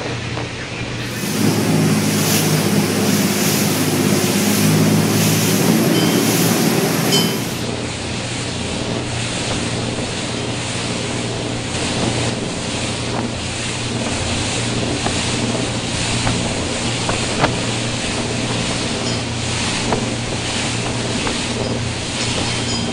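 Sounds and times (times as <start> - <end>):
waves and spray rushing: 1.0 - 7.7
wind buffeting microphone: 1.0 - 7.7
motorboat engine hum: 1.0 - 22.9.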